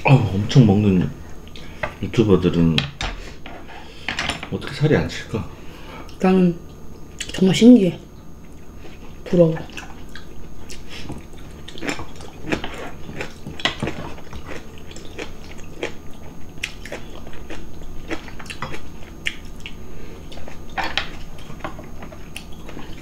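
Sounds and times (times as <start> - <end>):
people chewing and biting: 9.7 - 23.0.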